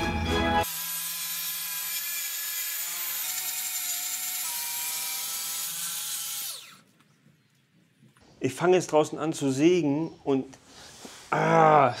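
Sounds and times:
plunge saw cutting board: 0:00.6 - 0:06.8.

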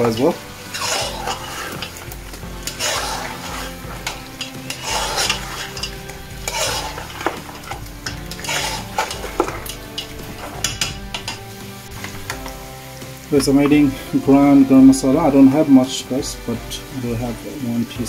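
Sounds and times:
metal spoon scraping pot: 0:00.0 - 0:12.6
meat sizzling: 0:00.0 - 0:18.0.

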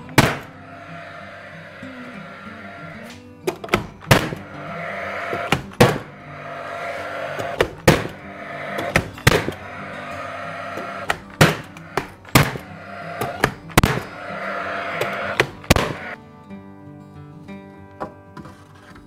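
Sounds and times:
background music: 0:00.0 - 0:18.8.

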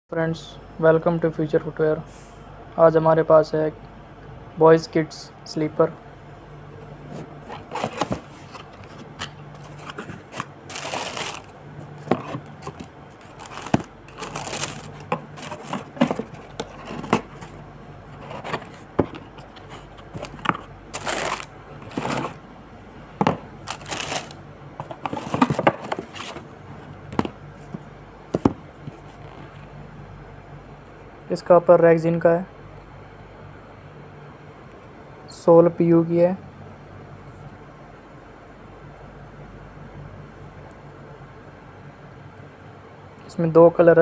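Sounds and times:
paper rustling and crinkling: 0:07.1 - 0:22.4, 0:23.6 - 0:26.5.

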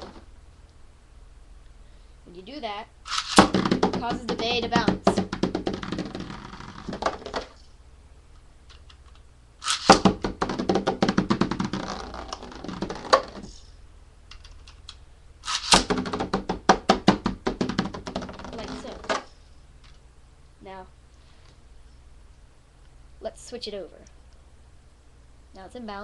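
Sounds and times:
spinning top rattling in plastic stadium: 0:03.1 - 0:07.6, 0:09.6 - 0:13.6, 0:15.4 - 0:19.3.

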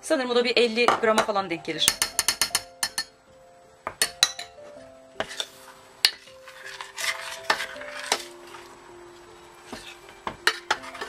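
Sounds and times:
metal spoons clinking on a pot: 0:01.8 - 0:03.1, 0:04.0 - 0:04.5
spoon scraping and stirring: 0:05.2 - 0:08.8, 0:09.6 - 0:11.0.

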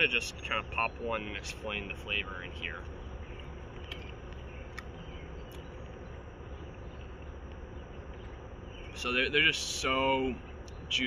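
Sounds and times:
insect drone: 0:00.0 - 0:11.0
chewing clicks: 0:02.8 - 0:08.4.

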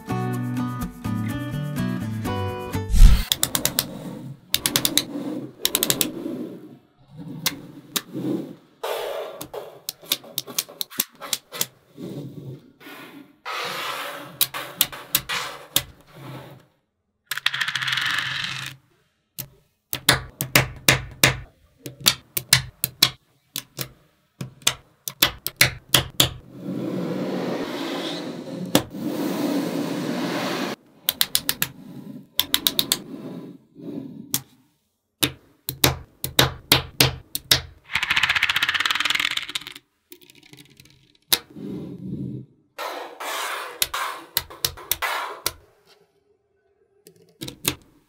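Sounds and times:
magnetic balls clicking: 0:35.2 - 0:41.4
balls rattling: 0:37.7 - 0:41.3.

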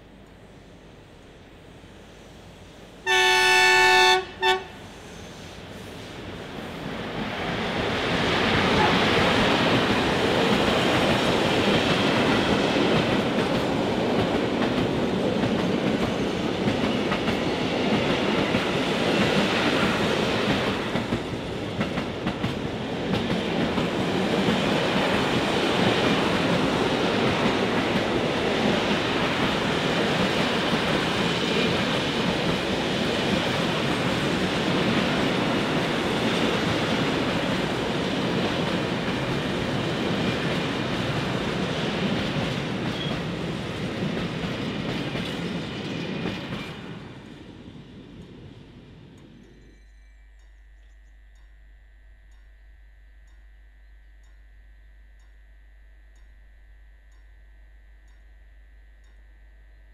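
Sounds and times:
steel wheels running on rails: 0:04.8 - 0:51.5.

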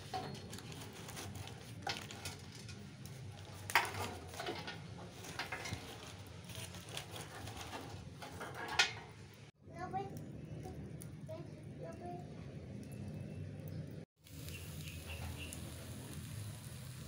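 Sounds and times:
charcoal and grill rack clinking: 0:00.0 - 0:09.5.

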